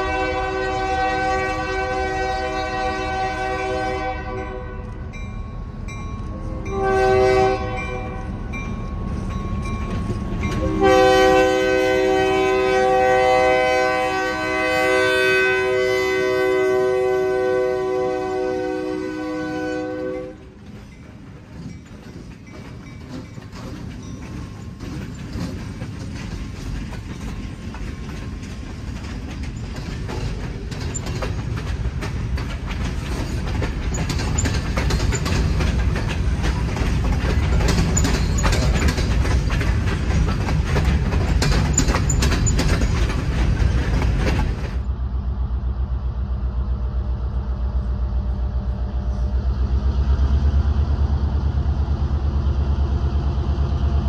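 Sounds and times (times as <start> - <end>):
wheels clicking over rail joints: 0.0 - 15.6, 19.6 - 44.9
freight train rolling past: 0.0 - 54.0.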